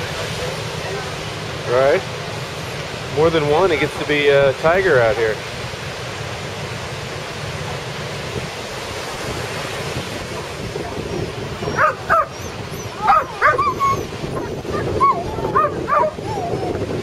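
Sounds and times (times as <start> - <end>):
ocean surf breaking: 0.0 - 17.0
dog yelping and whining: 11.0 - 17.0.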